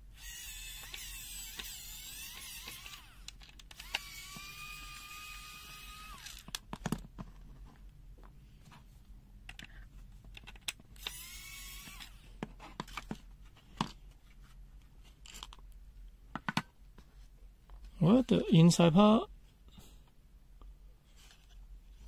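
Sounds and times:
electric screwdriver motor whining: 0.2 - 6.6, 11.0 - 12.2.

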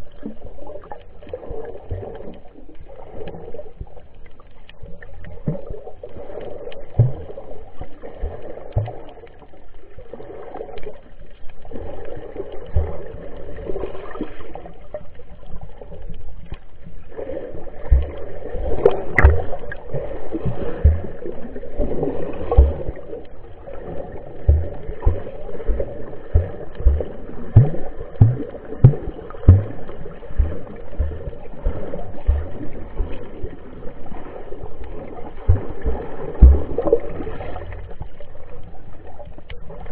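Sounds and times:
short low thumps: 19.2 - 19.6, 20.8 - 21.2, 22.5 - 23.0, 24.5 - 25.4, 26.3 - 33.1, 35.5 - 37.0.

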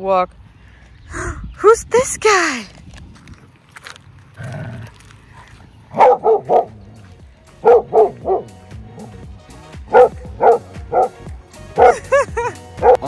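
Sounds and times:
dog barking: 5.9 - 6.8, 7.6 - 9.1, 9.9 - 11.2, 11.8 - 12.1, 12.8 - 13.0.

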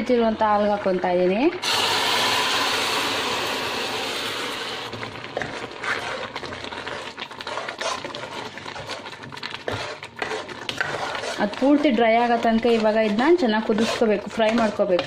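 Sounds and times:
caramel sizzling in a saucepan: 1.6 - 15.0
spoon stirring a pan: 4.8 - 15.0.

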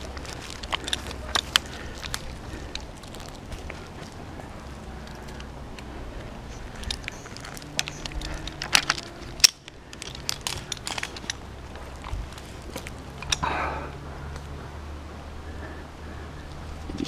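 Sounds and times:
bark scraping and cracking: 0.0 - 13.6
metal carabiners clinking: 0.0 - 13.9.

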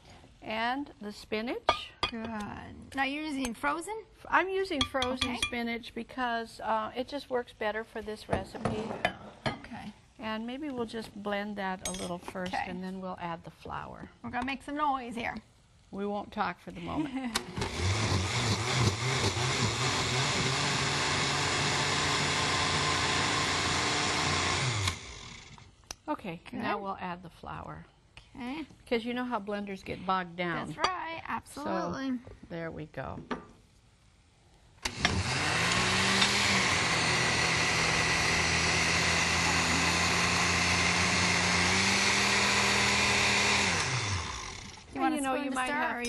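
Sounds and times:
electric blender running: 17.4 - 25.7, 34.8 - 45.0.

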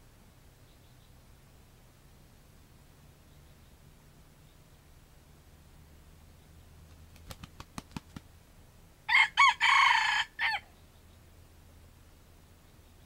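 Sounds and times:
sharp claps: 7.1 - 8.3
rooster crowing: 9.1 - 10.7.

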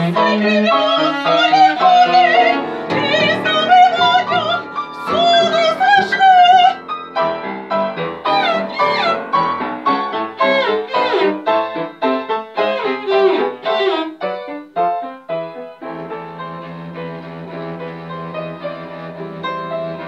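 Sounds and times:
soprano singing with vibrato: 0.0 - 6.8, 8.2 - 9.4
cello bowed notes: 0.0 - 20.0
piano: 0.0 - 20.0.

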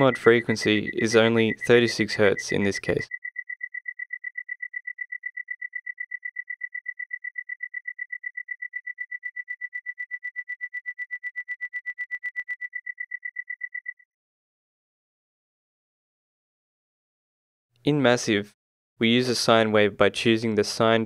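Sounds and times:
synthesized cricket chirp: 0.0 - 14.1.

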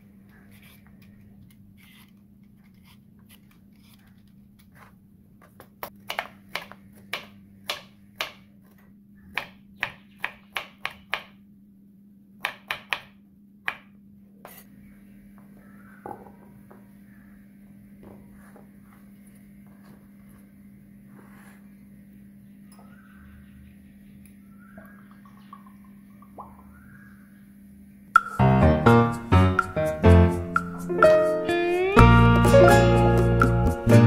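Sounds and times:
knife chopping on wooden board: 5.8 - 8.4.

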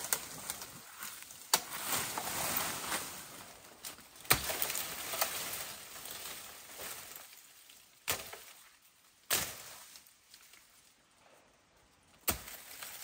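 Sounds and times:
bamboo leaves rustling: 0.0 - 11.2, 11.8 - 13.0
blade chopping bamboo: 4.3 - 5.3, 12.2 - 12.8.

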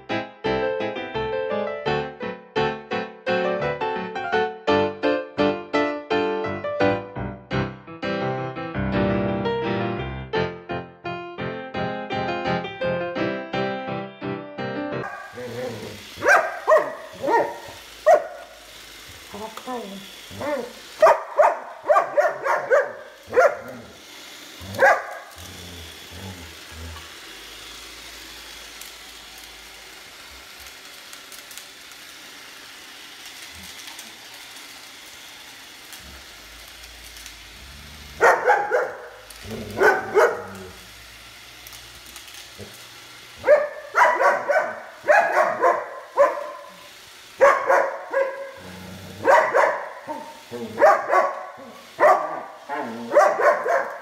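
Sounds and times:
dog barking: 15.0 - 18.5, 20.4 - 23.8, 24.8 - 25.3, 38.2 - 40.6, 43.4 - 48.6, 49.2 - 54.0
robot vacuum humming: 15.0 - 54.0.

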